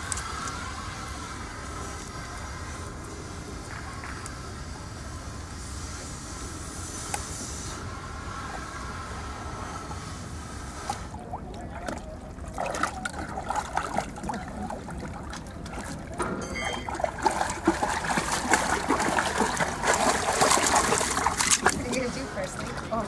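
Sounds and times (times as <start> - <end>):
dog wading through splashing water: 11.2 - 23.0.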